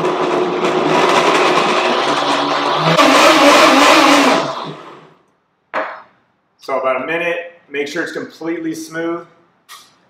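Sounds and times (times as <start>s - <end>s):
blender motor running: 0.6s - 5.2s.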